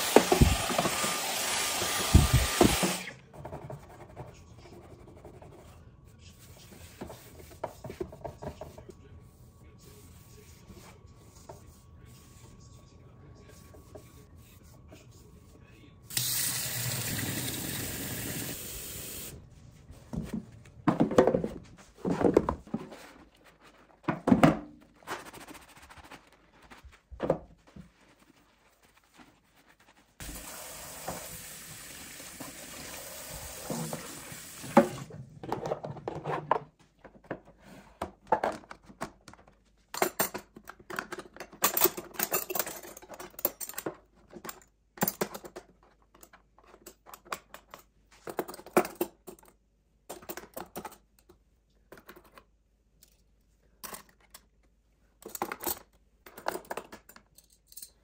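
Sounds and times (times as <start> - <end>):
metal cutlery clinking: 40.0 - 43.9.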